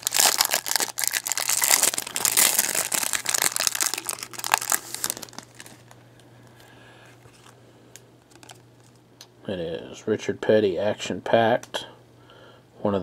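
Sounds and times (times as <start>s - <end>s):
plastic wrapper crinkling: 0.0s - 6.0s, 8.3s - 9.0s.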